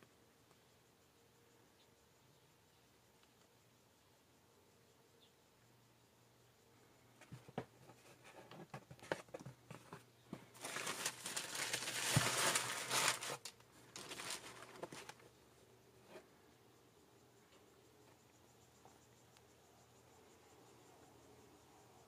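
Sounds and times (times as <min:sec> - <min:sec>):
tissue paper crinkling: 0:10.5 - 0:15.2.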